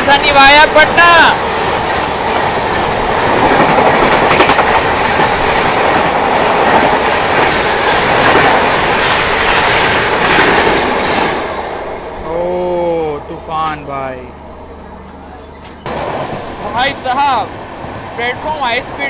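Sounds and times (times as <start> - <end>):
train rushing past: 0.0 - 19.0
train wheels clacking over rail joints: 0.3 - 11.5.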